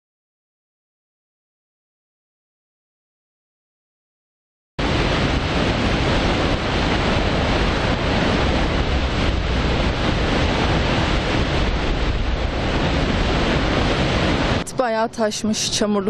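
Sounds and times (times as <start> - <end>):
waterfall rushing: 4.8 - 14.8.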